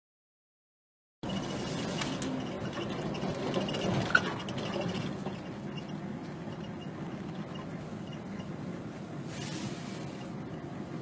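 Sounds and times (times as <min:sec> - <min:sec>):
road noise: 0:01.2 - 0:11.0
vehicle engine: 0:01.2 - 0:11.0
short high squeak: 0:09.3 - 0:10.4.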